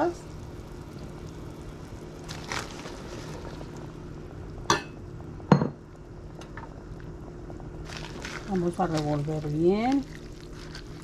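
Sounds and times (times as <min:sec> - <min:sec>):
boiling water: 0:00.0 - 0:11.0
steady low hum: 0:00.0 - 0:11.0
clinks against metal pot: 0:04.7 - 0:05.8.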